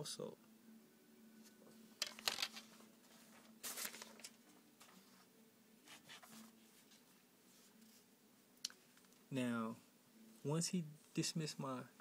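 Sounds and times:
paper rustling: 2.0s - 8.0s.

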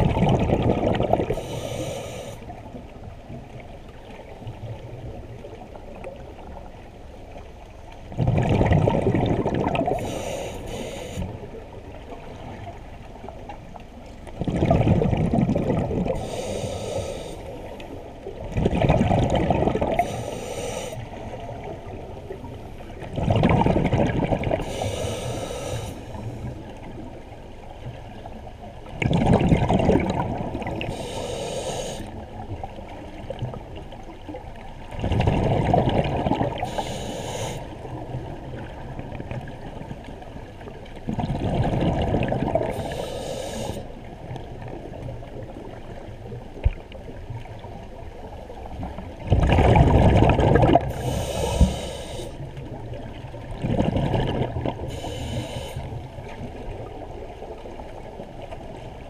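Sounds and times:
exhaled bubbles rumbling underwater: 0.0s - 59.0s
regulator hiss: 1.4s - 2.4s, 10.0s - 11.3s, 16.2s - 17.6s, 20.0s - 21.0s, 24.6s - 26.2s, 30.9s - 32.1s, 36.7s - 37.8s, 42.8s - 43.9s, 50.9s - 52.4s, 54.9s - 55.9s.

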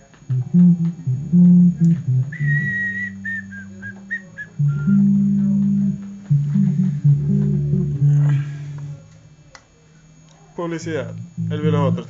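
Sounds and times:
electric bass guitar: 0.0s - 9.2s, 11.0s - 12.0s
person whistling a melody: 2.3s - 5.6s.

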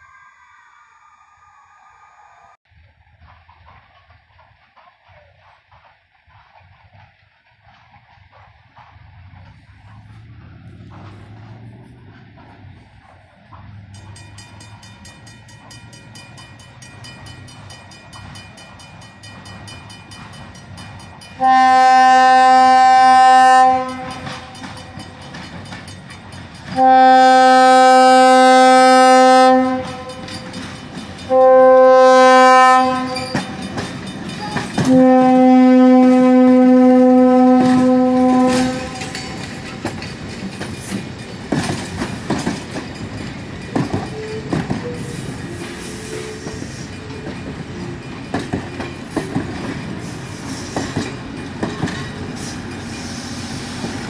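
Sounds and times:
low train rumble: 0.0s - 54.0s
wheels clicking over rail joints: 3.2s - 54.0s
locomotive air horn blasts: 21.4s - 24.6s, 26.8s - 30.4s, 31.3s - 33.6s, 34.8s - 39.2s.

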